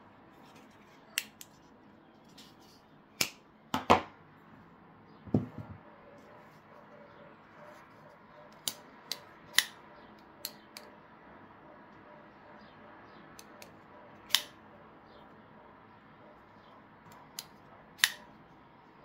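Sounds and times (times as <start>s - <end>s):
pocket knife blades clicking: 8.5s - 9.8s, 13.4s - 14.6s, 17.1s - 18.2s.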